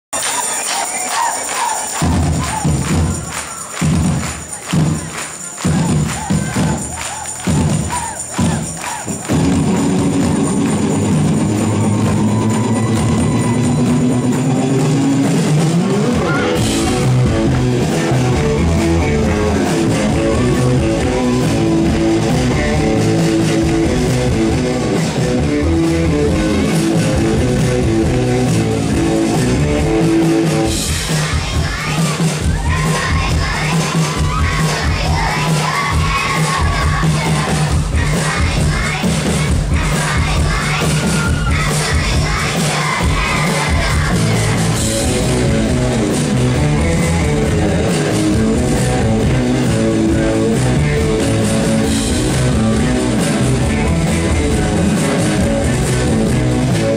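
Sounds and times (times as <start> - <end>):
live rock band: 1.1 - 56.9.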